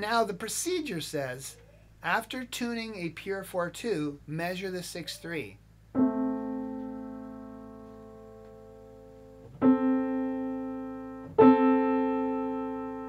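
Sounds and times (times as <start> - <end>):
piano octave ringing: 6.0 - 13.0.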